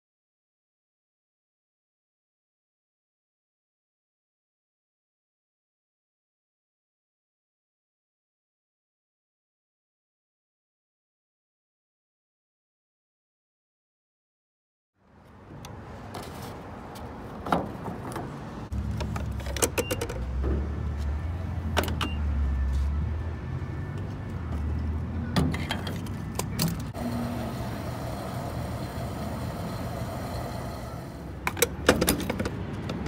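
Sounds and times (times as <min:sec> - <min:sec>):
fuel pump humming: 0:27.0 - 0:31.4.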